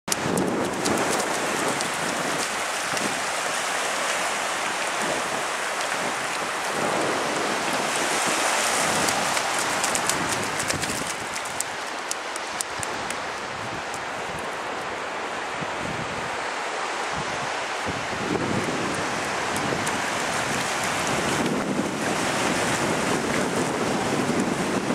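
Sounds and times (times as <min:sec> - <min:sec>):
sea water washing on beach: 0:00.1 - 0:24.9
child's feet splashing in water: 0:07.5 - 0:13.4.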